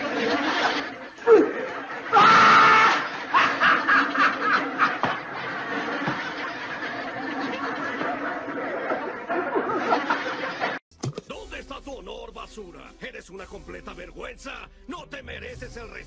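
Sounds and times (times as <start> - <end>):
people laughing: 2.9 - 10.8.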